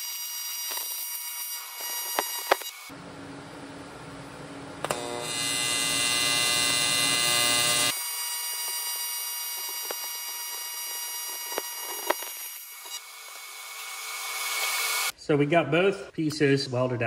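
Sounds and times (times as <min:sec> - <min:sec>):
welding arc buzzing: 0:00.0 - 0:03.0, 0:04.8 - 0:15.1.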